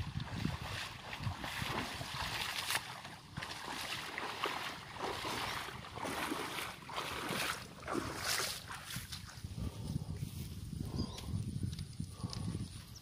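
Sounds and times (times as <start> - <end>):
wading through floodwater: 0.0 - 10.9.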